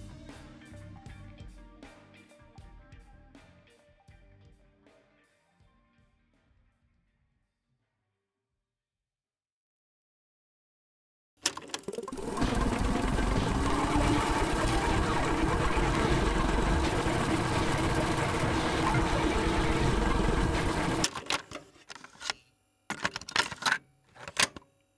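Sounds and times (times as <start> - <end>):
tape deck mechanism clicks: 11.4 - 24.6
tape rewinding whir: 11.5 - 21.1.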